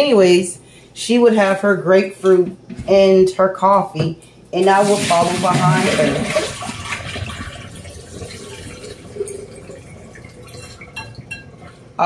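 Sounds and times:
tap water running into sink: 0:04.6 - 0:11.7.

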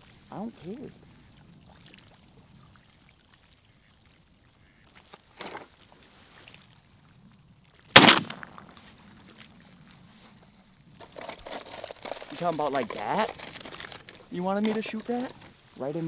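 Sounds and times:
shotgun shot: 0:08.0 - 0:08.7.

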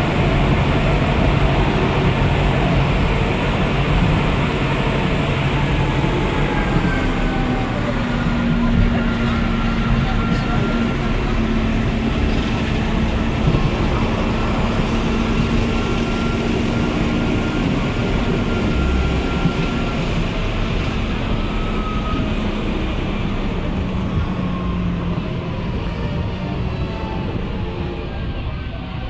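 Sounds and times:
electric railcar rumbling: 0:00.0 - 0:29.0.

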